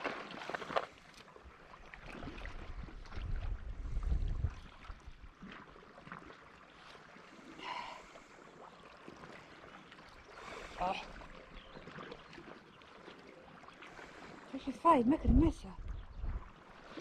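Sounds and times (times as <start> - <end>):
wind buffeting microphone: 2.2 - 5.3, 15.0 - 16.6.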